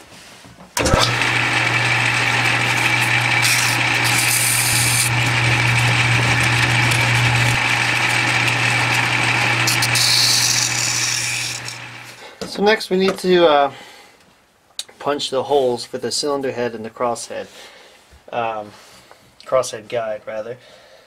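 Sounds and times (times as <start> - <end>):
metal lathe running: 0.8 - 12.2.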